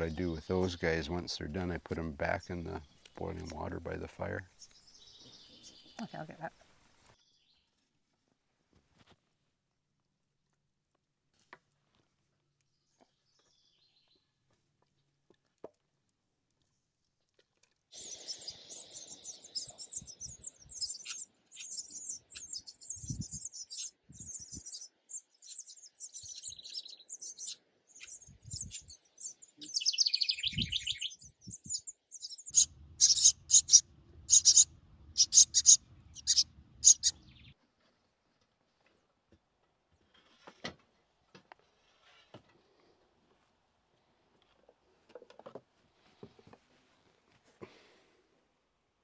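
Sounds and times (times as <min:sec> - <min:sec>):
bubbling falling birdsong: 0:17.9 - 0:24.9, 0:25.5 - 0:37.5
wren chirping: 0:18.0 - 0:37.5
loud rapid bird notes: 0:26.3 - 0:37.5
low rumble: 0:33.8 - 0:35.2, 0:35.8 - 0:37.3.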